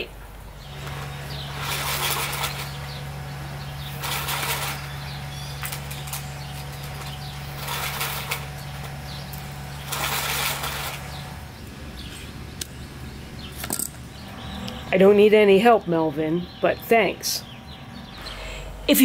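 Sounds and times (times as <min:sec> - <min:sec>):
low steady hum: 0:00.0 - 0:19.0
trimmer line swishing: 0:00.9 - 0:03.2, 0:03.8 - 0:11.4.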